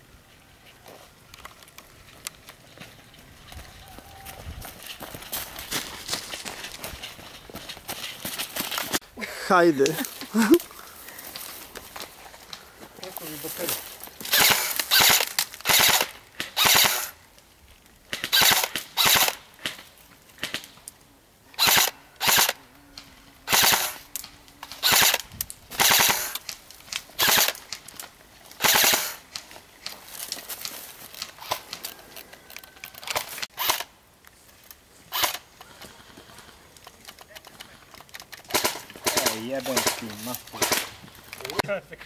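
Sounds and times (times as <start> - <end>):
airsoft rifles firing bursts: 14.3 - 17.2, 18.1 - 19.8, 21.6 - 22.6, 23.5 - 24.0, 24.8 - 26.5, 27.2 - 27.6, 28.6 - 29.2, 38.5 - 41.0.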